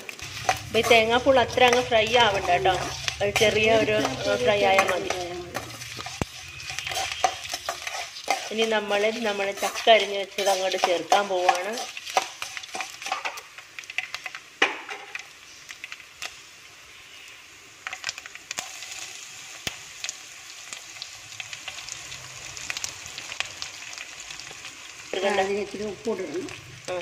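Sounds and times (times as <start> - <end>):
sharp crackles: 0.0 - 16.4
oil sizzling in a pan: 0.0 - 27.0
metal spoon scraping a pan: 0.1 - 14.4.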